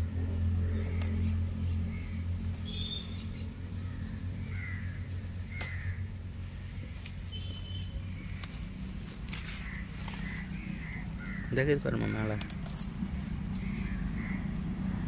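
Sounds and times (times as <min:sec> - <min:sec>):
birds calling: 0:00.0 - 0:15.0
steady low hum: 0:00.0 - 0:15.0
sharp clicks: 0:12.4 - 0:12.8.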